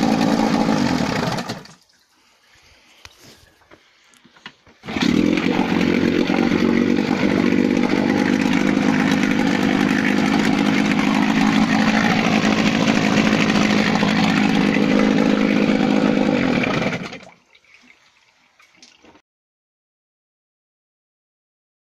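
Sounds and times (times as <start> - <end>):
two-stroke outboard motor running: 0.0 - 1.7, 4.8 - 17.3.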